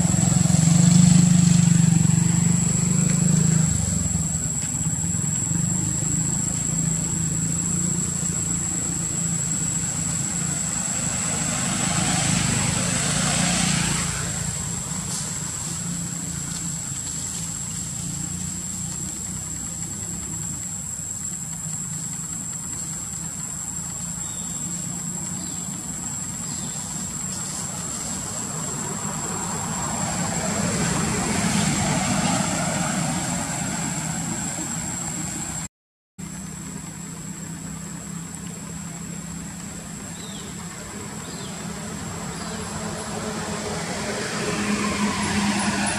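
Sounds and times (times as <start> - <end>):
engine running: 0.0 - 45.9.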